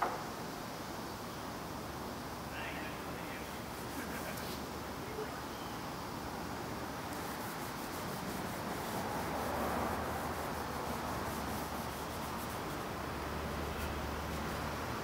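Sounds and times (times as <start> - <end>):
cloth rubbing on wood: 7.1 - 15.0.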